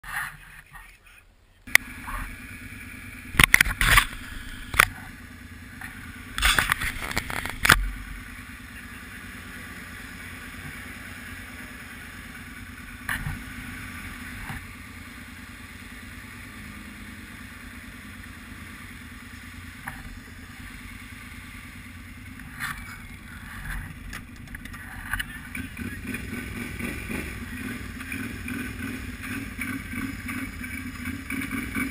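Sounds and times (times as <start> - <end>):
engine idling: 0.5 - 31.9
knocks and rustles: 3.4 - 5.1, 5.8 - 7.9, 22.5 - 25.3.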